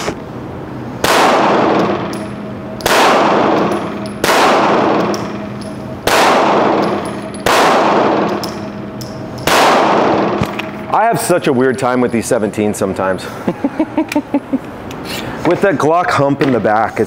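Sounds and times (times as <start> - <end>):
pistol shots echoing indoors: 1.0 - 10.9.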